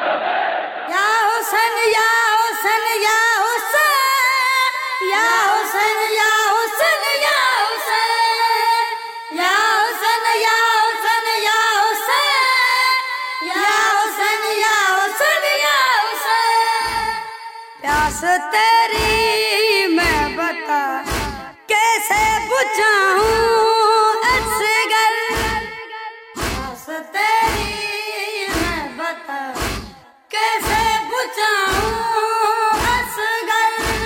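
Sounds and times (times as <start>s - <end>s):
person singing wordless lament: 0.9s - 25.8s.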